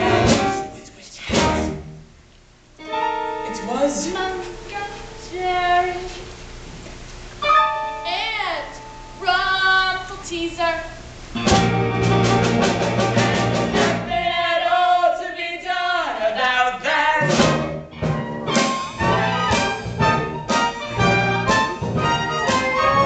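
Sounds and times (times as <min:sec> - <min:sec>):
musical theatre singing with band: 0:00.0 - 0:01.9, 0:11.4 - 0:23.0.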